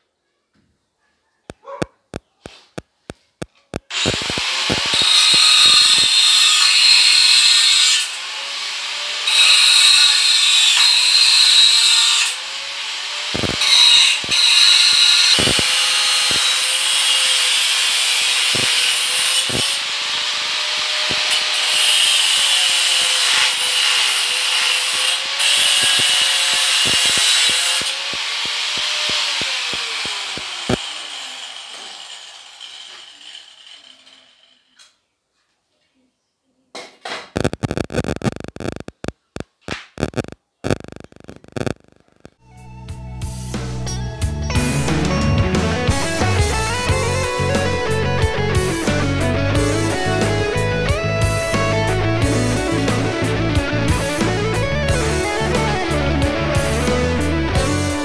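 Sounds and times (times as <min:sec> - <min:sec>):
power tool whining: 0:03.8 - 0:34.1
tool scraping metal: 0:03.9 - 0:08.1, 0:13.3 - 0:34.7.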